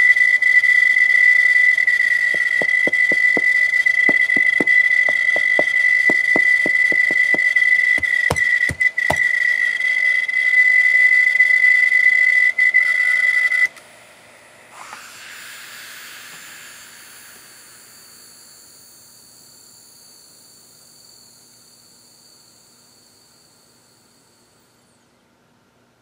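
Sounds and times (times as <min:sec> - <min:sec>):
spinning platters hiss and whine: 0:00.0 - 0:08.3, 0:13.0 - 0:25.1
hard drive squealing: 0:01.3 - 0:09.8.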